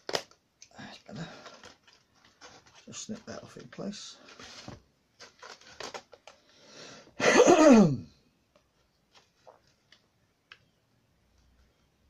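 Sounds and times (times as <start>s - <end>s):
man clearing his throat: 7.2s - 8.1s.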